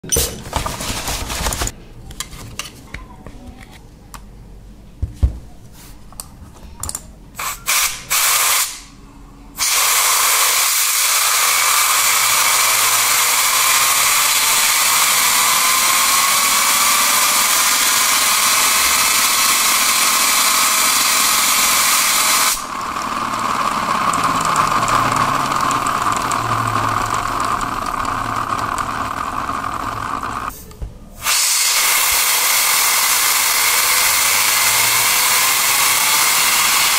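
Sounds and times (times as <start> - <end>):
compressed air hissing: 7.4 - 8.9, 31.2 - 32.4
faint whine of spinning wheel: 22.7 - 30.5.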